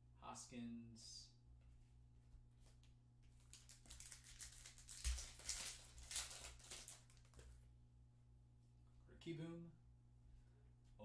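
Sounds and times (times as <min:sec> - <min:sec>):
low electrical hum: 0:00.0 - 0:11.0
foil wrapper crinkling and tearing: 0:03.5 - 0:07.4.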